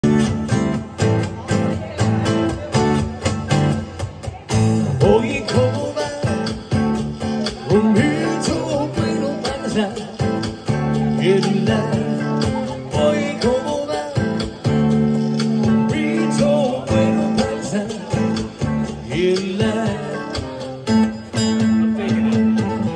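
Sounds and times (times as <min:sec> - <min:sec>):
acoustic guitar strummed: 0:00.0 - 0:22.9
man singing into microphone: 0:04.8 - 0:22.9.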